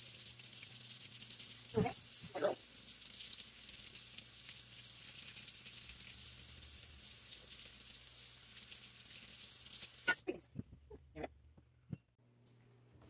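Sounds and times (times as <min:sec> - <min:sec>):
brush scrubbing vegetables: 0:00.0 - 0:10.4.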